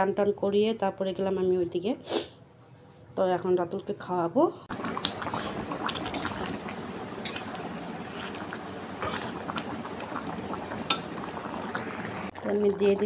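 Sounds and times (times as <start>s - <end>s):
curry bubbling in a pan: 4.7s - 13.0s.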